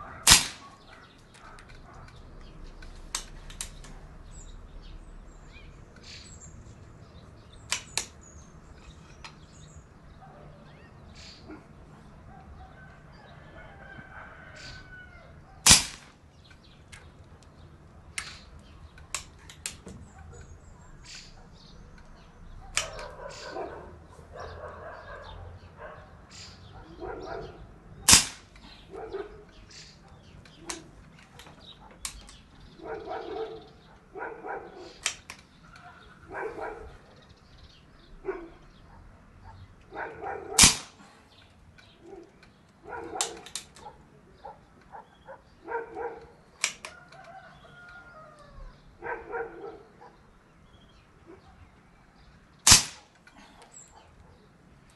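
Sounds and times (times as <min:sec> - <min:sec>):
air rifle shots: 0:00.2 - 0:01.0, 0:07.6 - 0:08.2, 0:15.6 - 0:16.2, 0:22.7 - 0:23.6, 0:28.0 - 0:28.9, 0:40.5 - 0:41.2, 0:52.6 - 0:53.4
small metallic clicks: 0:00.3 - 0:04.0, 0:07.6 - 0:08.2, 0:15.7 - 0:20.5, 0:22.0 - 0:23.4, 0:29.4 - 0:32.6, 0:34.9 - 0:35.9, 0:40.6 - 0:43.9, 0:46.6 - 0:48.0
animal calls: 0:22.5 - 0:37.4.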